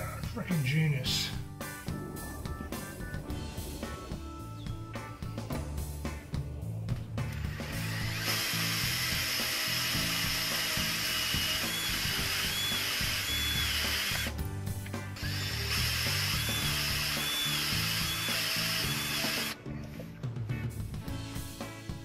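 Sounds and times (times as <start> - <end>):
cordless drill whining: 7.3 - 14.4, 15.2 - 19.6.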